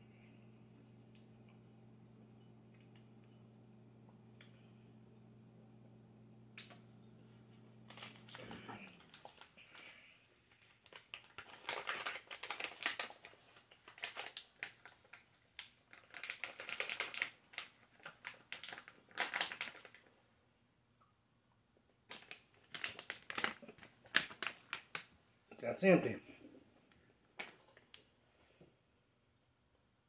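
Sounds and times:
plastic pouch crinkling: 7.8s - 20.1s, 22.1s - 25.1s.

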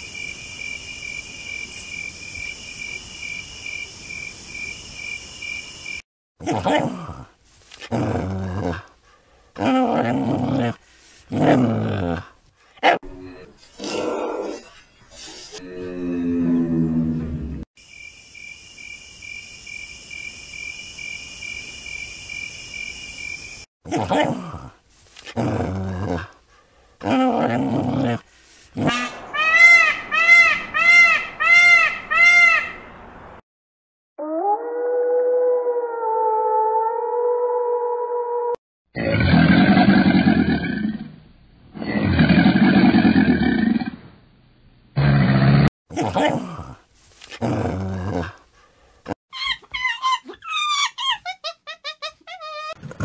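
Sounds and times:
peacock calling: 28.9s - 32.8s.

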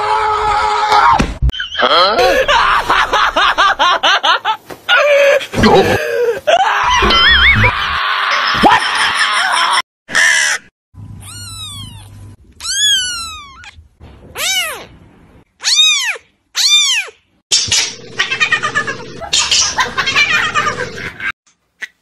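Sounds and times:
kitten meowing: 11.2s - 13.8s.

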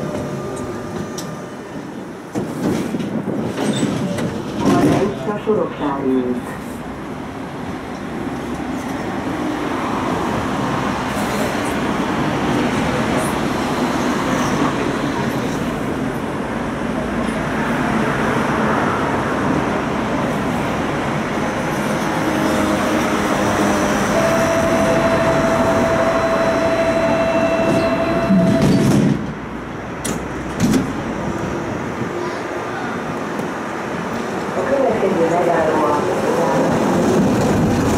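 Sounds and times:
electric tram rumbling on rails: 0.0s - 37.9s
loud clunk: 28.3s - 29.4s.

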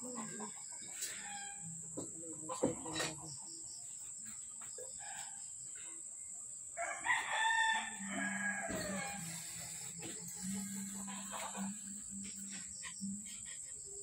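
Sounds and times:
rooster crowing: 0.1s - 1.8s, 6.8s - 11.9s.

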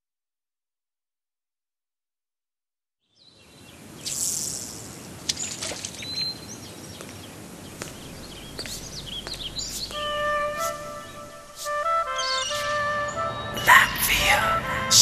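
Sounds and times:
birds chirping: 3.1s - 15.0s
outdoor background noise: 3.1s - 15.0s.

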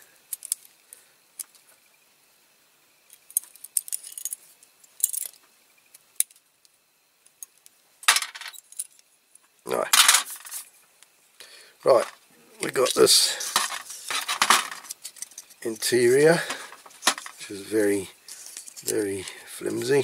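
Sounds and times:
small metal clicks and clinks: 0.3s - 0.7s, 3.1s - 5.4s
metal parts clattering down: 3.3s - 4.4s, 5.0s - 5.4s, 8.1s - 9.0s, 9.8s - 10.6s, 12.8s - 15.7s, 16.3s - 17.5s.

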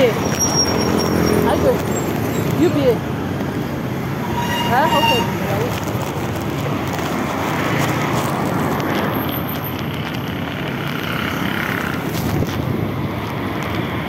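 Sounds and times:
street traffic rumble: 0.0s - 14.0s
motorcycle approaching: 9.8s - 12.4s.

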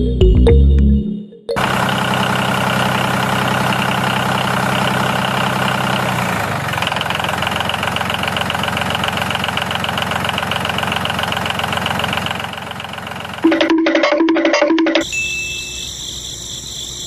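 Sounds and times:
diesel tractor engine running: 1.6s - 14.5s.

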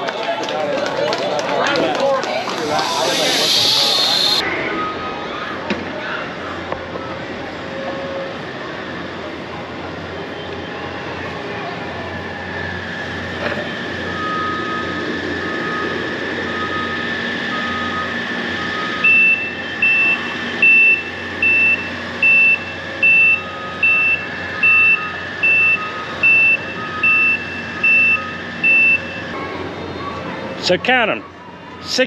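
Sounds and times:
machinery hum: 1.9s - 4.4s
high-pitched backup alarm beeping: 2.5s - 4.4s, 14.1s - 29.4s
low-pitched backup alarm beeping: 2.6s - 4.4s, 14.1s - 29.3s.

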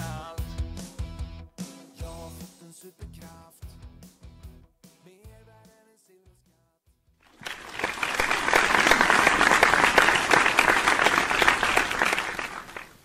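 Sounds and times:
applause: 7.3s - 13.0s.

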